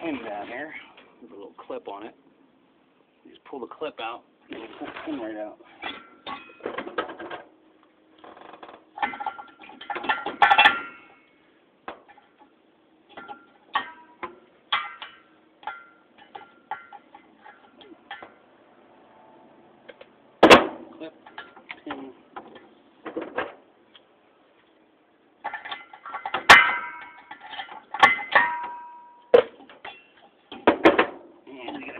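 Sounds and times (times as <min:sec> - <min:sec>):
ceiling fan metal parts rattling: 0:08.3 - 0:18.6, 0:19.9 - 0:23.6, 0:25.3 - 0:31.9.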